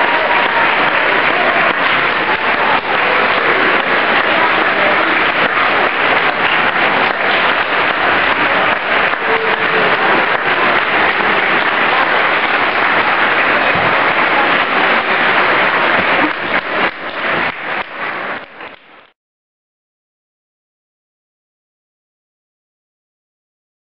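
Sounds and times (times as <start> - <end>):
audience applauding: 0.0 - 19.2.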